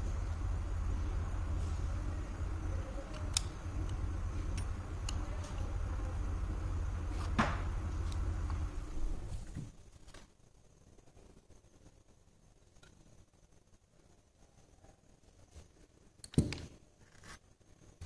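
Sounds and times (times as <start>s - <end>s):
low hum: 0.0s - 9.8s.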